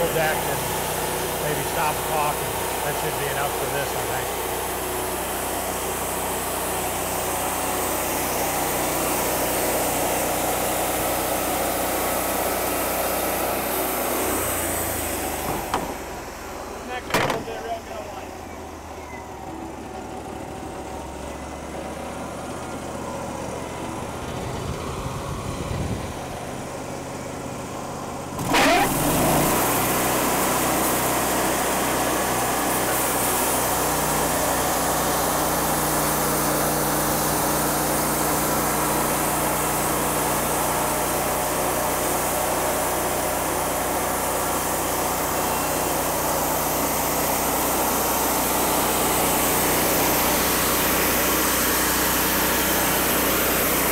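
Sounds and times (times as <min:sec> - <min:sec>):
sawmill engine idling: 0:00.0 - 0:53.9
band saw blade cutting log: 0:12.1 - 0:17.9, 0:28.4 - 0:39.1.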